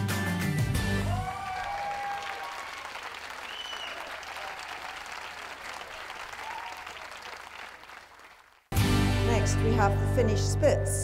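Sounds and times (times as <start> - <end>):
audience applauding: 1.0 - 8.8.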